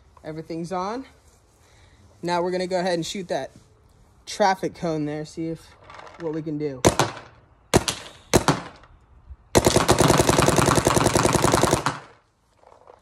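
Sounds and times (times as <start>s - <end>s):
paintball marker firing: 6.8s - 8.9s, 9.6s - 12.2s.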